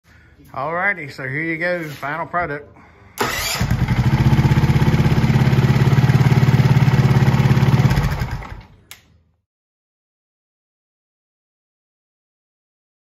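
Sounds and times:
motorcycle engine idling: 0:03.6 - 0:08.7
short click: 0:08.9 - 0:09.2.

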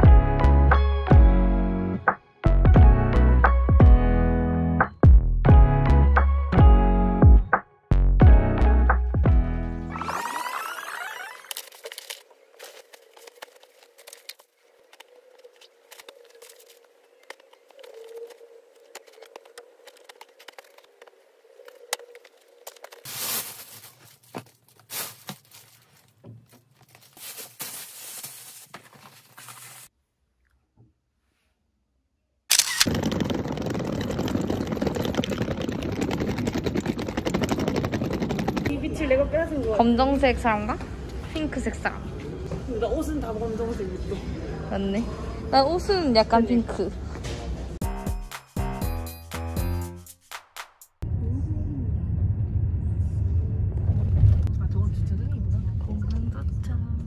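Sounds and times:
plastic bags crinkling: 0:11.5 - 0:14.4, 0:22.7 - 0:29.9
suitcase wheels rolling on bricks: 0:32.8 - 0:39.2.

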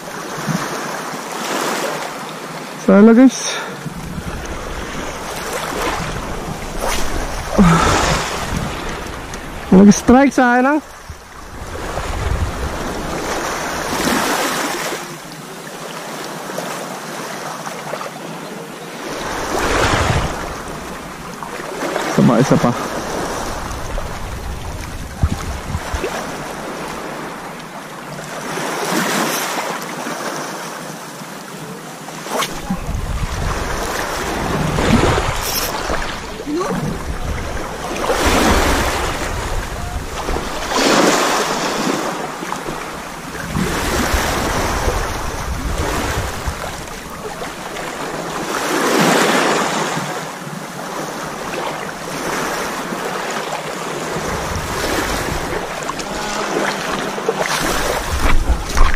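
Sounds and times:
small waves washing on stony shore: 0:00.0 - 0:58.9
wind buffeting microphone: 0:03.8 - 0:10.1, 0:10.7 - 0:14.4, 0:19.1 - 0:21.8, 0:22.8 - 0:27.7, 0:32.5 - 0:48.5, 0:54.1 - 0:58.9.

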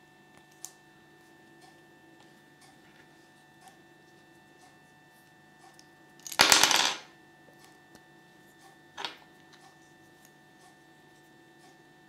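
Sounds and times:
plastic toy pieces clattering: 0:06.2 - 0:07.0.

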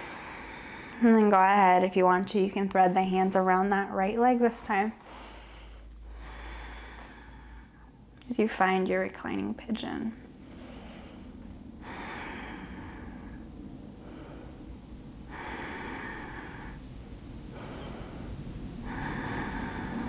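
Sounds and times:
slow deep breathing: 0:00.0 - 0:01.1, 0:05.0 - 0:08.2, 0:10.2 - 0:20.0.

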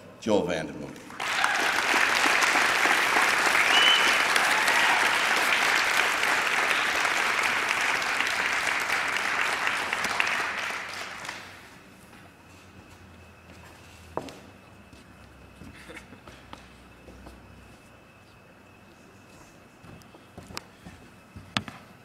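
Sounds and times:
audience applauding: 0:01.1 - 0:11.7.

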